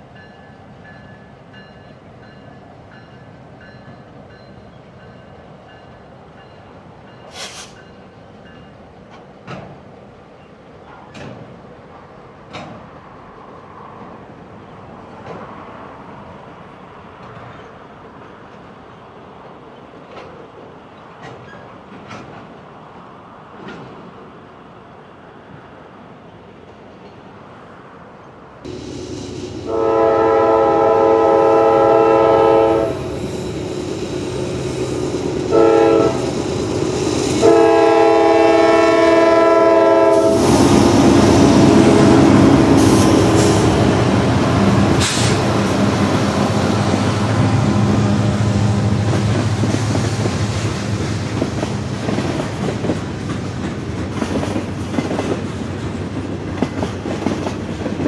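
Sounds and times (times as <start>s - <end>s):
freight cars clickety-clack: 12.4s - 13.0s, 21.1s - 22.6s, 40.3s - 47.4s, 48.3s - 58.0s
train air horn blasts: 28.7s - 33.3s, 34.4s - 50.0s
locomotives passing rumble: 28.7s - 39.2s, 40.2s - 56.4s.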